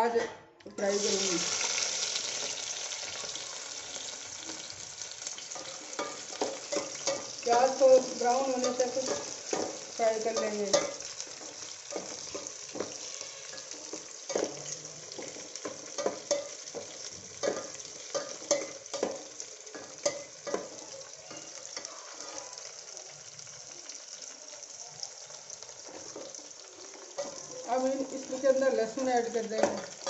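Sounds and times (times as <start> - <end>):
onions sizzling in hot oil: 0.8 - 30.0
metal spatula scraping pot: 5.5 - 19.2.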